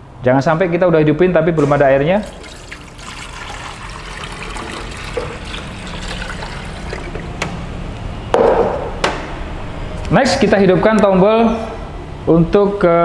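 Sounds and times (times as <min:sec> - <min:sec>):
water pouring into a tank: 0:02.1 - 0:07.5.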